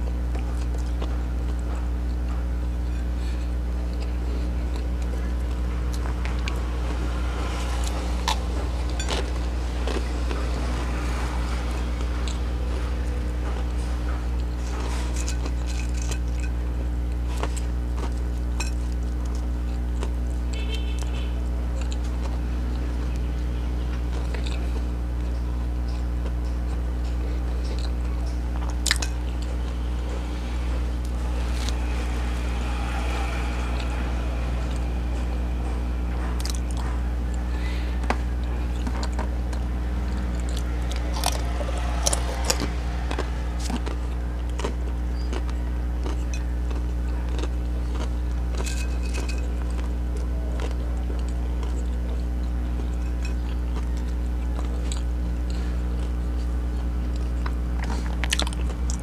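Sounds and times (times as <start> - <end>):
chewing crunchy chips: 0.0 - 59.0
low electrical hum: 0.0 - 59.0.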